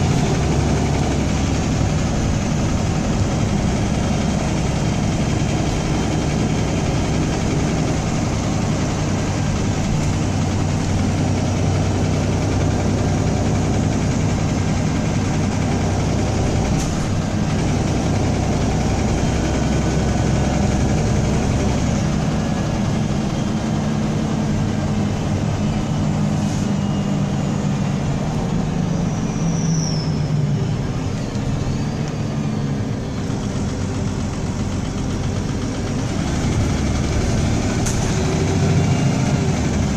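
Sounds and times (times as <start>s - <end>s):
bus engine running with a rattle: 0.0s - 39.9s
high descending squeal: 25.0s - 33.2s.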